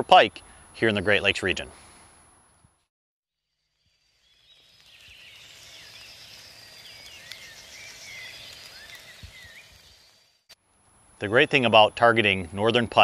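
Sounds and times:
small birds chirping: 3.7s - 10.5s
faint steady background noise: 3.8s - 13.0s.

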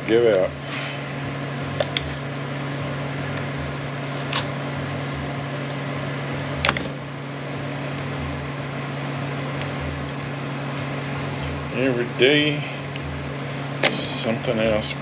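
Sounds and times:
mechanical hum with low throb: 0.0s - 15.0s.

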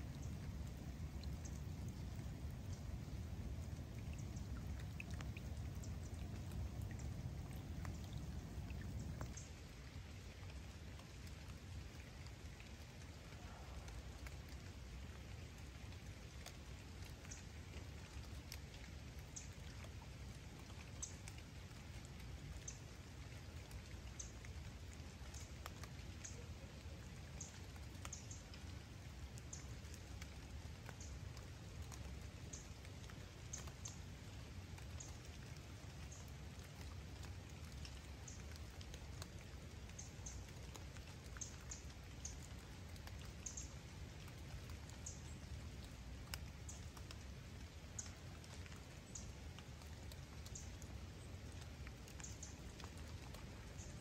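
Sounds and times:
rain hissing: 0.0s - 10.3s
sharp raindrops: 0.0s - 54.0s.

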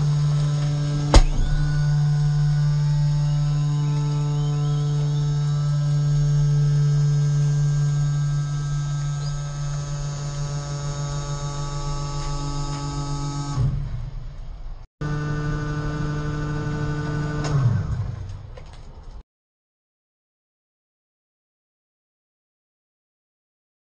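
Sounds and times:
hydraulic drive humming: 0.0s - 14.1s, 15.0s - 18.5s
short knock: 1.1s - 2.0s.

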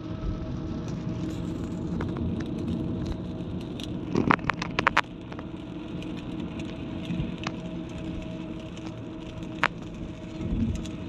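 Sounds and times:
car road and engine noise: 0.0s - 11.0s.

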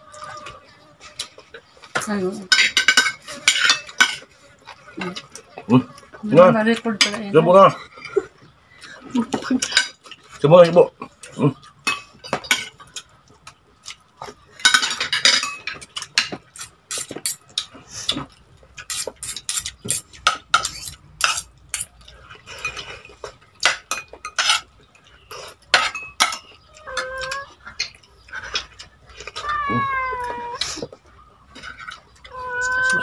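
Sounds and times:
cutlery clinking against a plate: 1.2s - 4.4s, 9.6s - 10.2s, 11.8s - 13.1s, 13.8s - 29.0s, 31.5s - 32.4s.

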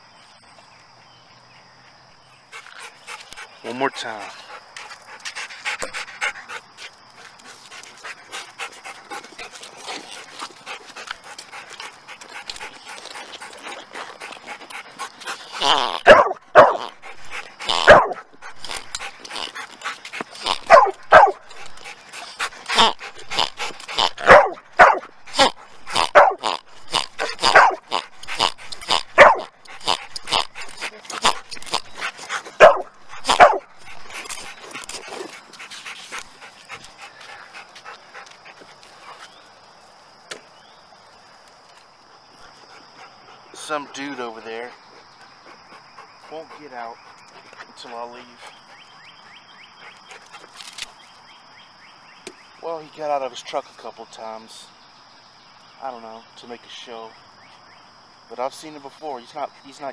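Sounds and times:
electronic toy pig oinking: 15.6s - 16.1s, 22.7s - 24.3s.

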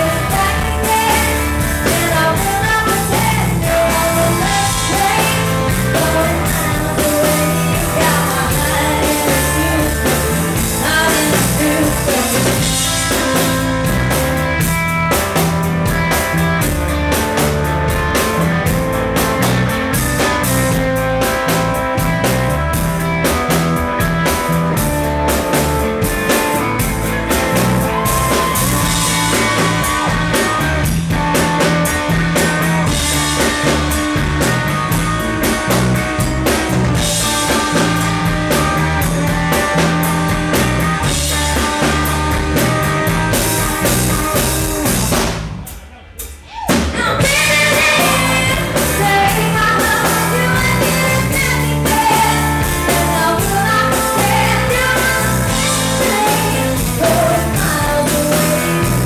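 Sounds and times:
woman singing: 0.0s - 12.7s, 46.9s - 59.0s
live rock band playing: 0.0s - 59.0s.

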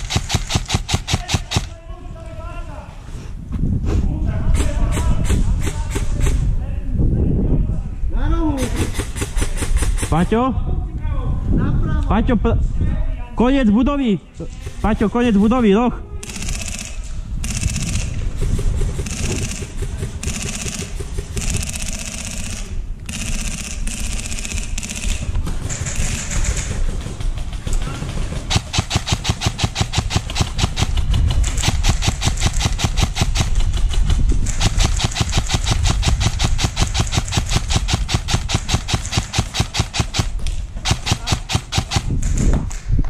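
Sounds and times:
airsoft gun firing full auto: 0.0s - 1.7s, 16.2s - 27.5s, 28.3s - 42.4s.

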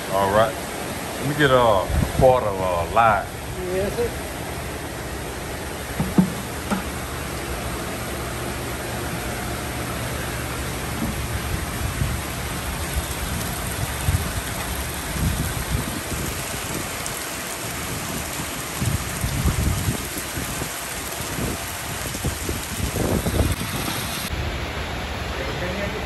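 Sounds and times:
water spraying and bubbling: 5.1s - 24.5s.

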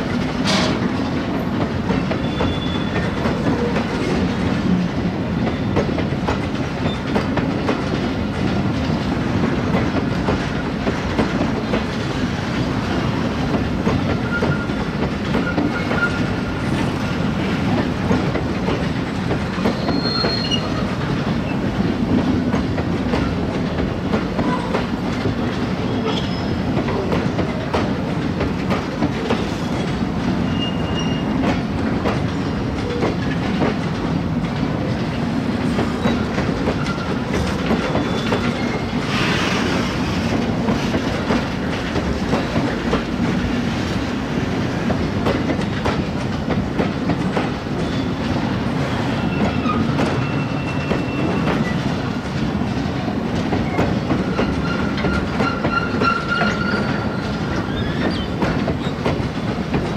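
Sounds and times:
clickety-clack over rail joints: 0.0s - 59.9s
train wheels rumbling on rails: 0.0s - 59.9s
faint wheel squeals: 19.7s - 20.8s.

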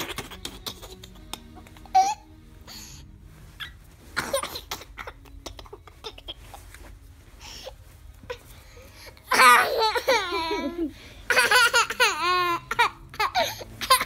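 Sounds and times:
rustling: 0.0s - 14.0s
child giggling: 9.3s - 14.0s.

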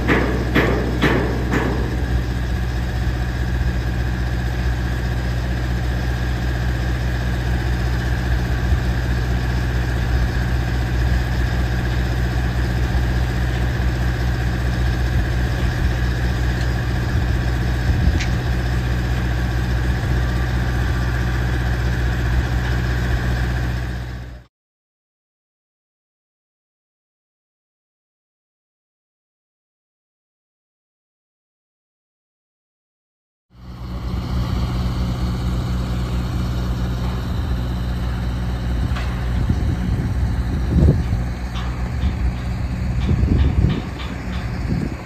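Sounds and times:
sharp knocks: 0.0s - 2.4s
construction machine engine idling: 0.0s - 24.5s, 33.5s - 45.0s.

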